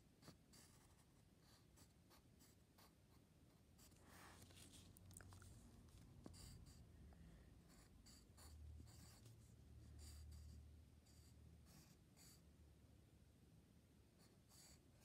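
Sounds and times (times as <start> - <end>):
pen scratching on paper: 0.2 - 4.8, 6.2 - 6.8, 7.7 - 12.4, 14.2 - 15.0.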